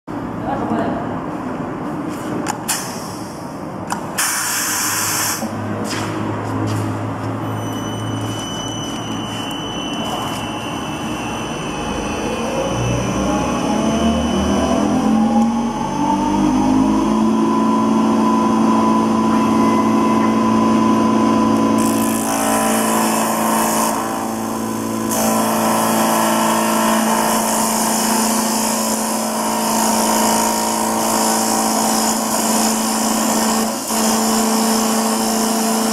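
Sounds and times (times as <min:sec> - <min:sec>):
lathe motor whining: 0:07.6 - 0:35.9.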